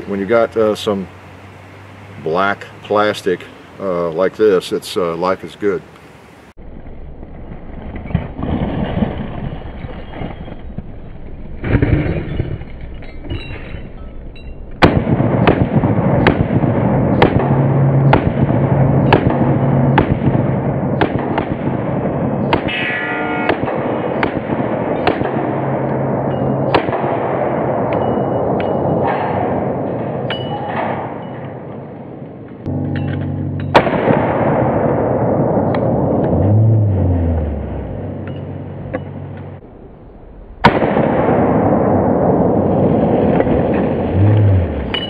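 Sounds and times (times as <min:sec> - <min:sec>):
steel targets ringing: 0:12.2 - 0:14.8, 0:22.4 - 0:24.2, 0:25.8 - 0:26.8, 0:27.6 - 0:29.4, 0:30.1 - 0:31.6, 0:32.7 - 0:34.6, 0:38.1 - 0:39.4
rapid pistol shots: 0:14.8 - 0:22.8, 0:23.4 - 0:25.7, 0:26.7 - 0:28.0.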